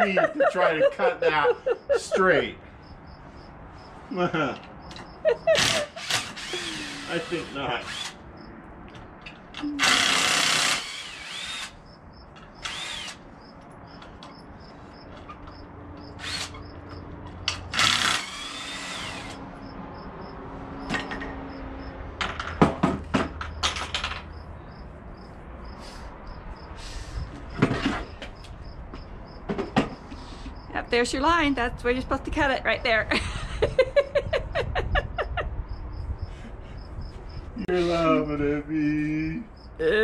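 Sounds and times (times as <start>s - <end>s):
power drill driving screws: 5.6s - 8.2s, 9.8s - 11.8s, 12.6s - 13.2s, 16.2s - 16.6s, 17.7s - 19.4s
boards knocking and clicking: 22.2s - 24.3s.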